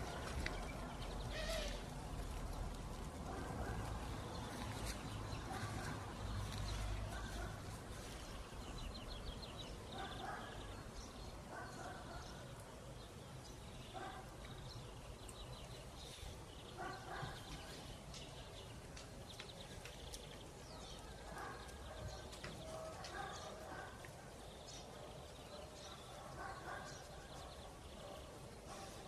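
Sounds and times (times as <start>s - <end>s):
small birds chirping: 0.0s - 29.0s
short low bird calls: 1.2s - 1.9s.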